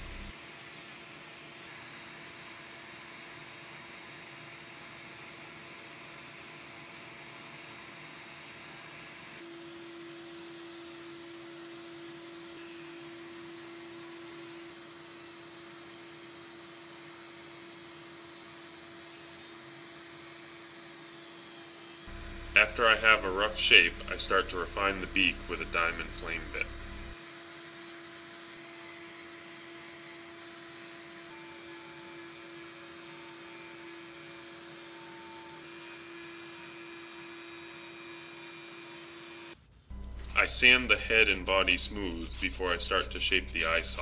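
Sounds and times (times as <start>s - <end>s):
rotary tool whine: 0.0s - 5.5s, 6.9s - 44.0s
sanding drum hissing on wood: 40.4s - 44.0s.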